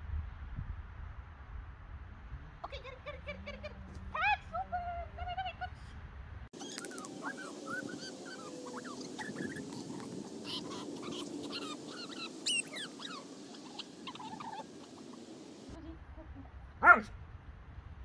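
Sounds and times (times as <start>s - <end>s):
dog whining and yipping: 6.6s - 14.7s.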